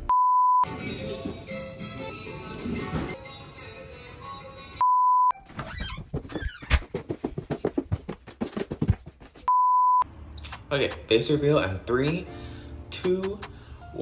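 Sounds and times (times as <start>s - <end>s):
pure beep tone: 0.0s - 0.7s, 4.8s - 5.4s, 9.5s - 10.1s
background music: 0.0s - 4.8s, 10.0s - 14.0s.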